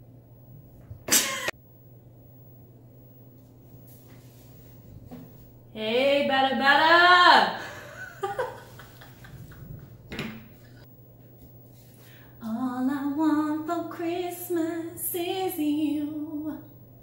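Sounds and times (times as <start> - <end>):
woman singing long held notes: 5.8 - 7.6, 12.4 - 16.7.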